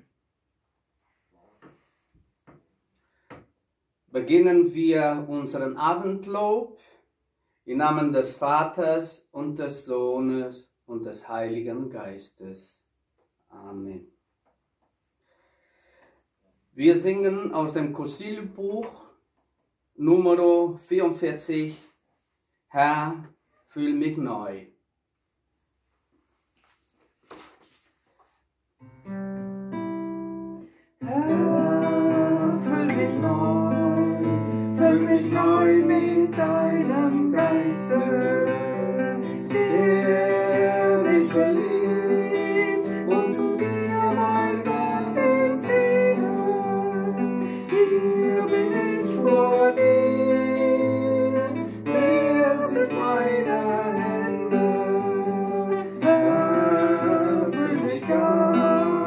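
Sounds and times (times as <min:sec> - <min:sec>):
acoustic guitar chords: 0:28.8 - 0:59.0
woman singing a hymn: 0:31.0 - 0:38.9, 0:39.5 - 0:47.2.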